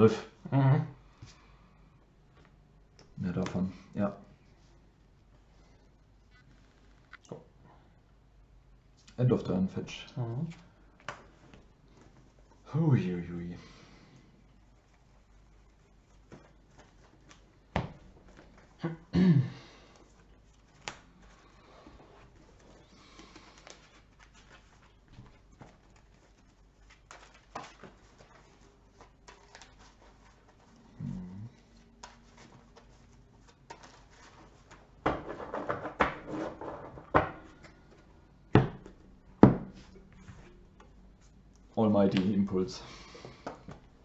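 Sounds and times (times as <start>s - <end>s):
cards rustling and sliding: 19.9s - 30.9s, 31.6s - 38.1s.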